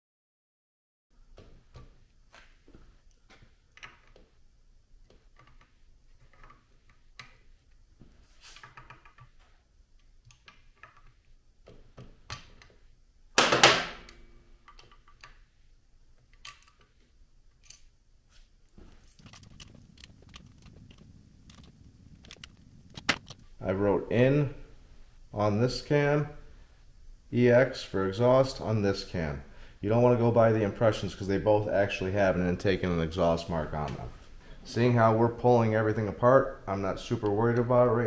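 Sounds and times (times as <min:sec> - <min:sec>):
loud metal clank: 0:13.4 - 0:14.3.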